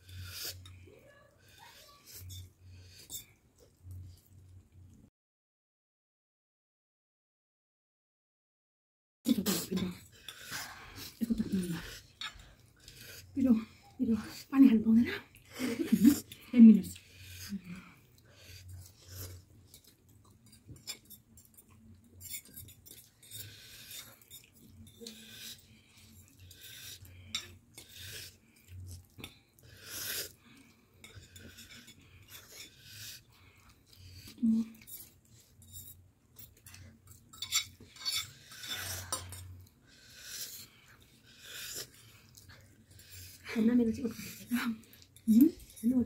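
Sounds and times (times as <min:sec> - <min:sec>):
forks clinking on ceramic plates: 0:19.7 - 0:25.2, 0:27.3 - 0:27.6, 0:34.7 - 0:39.5.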